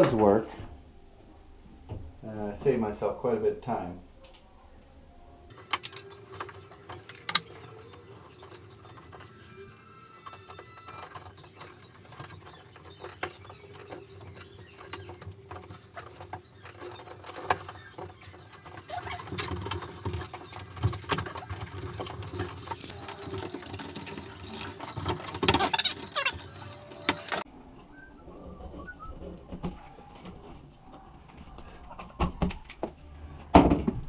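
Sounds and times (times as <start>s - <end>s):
electrical cable scraping and rustling: 5.5s - 27.5s.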